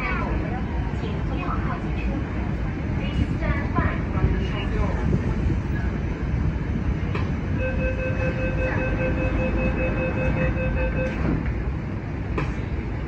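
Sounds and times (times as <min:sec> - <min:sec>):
train humming: 0:00.0 - 0:13.0
rapid warning beeps: 0:07.6 - 0:11.3.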